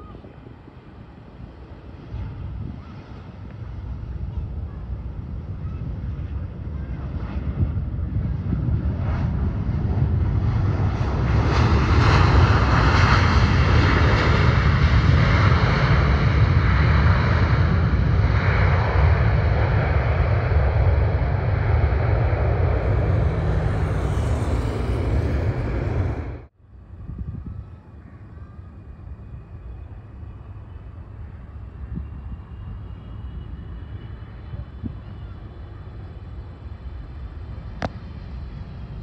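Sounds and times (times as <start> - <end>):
jet engines rolling on runway: 0.0 - 39.0.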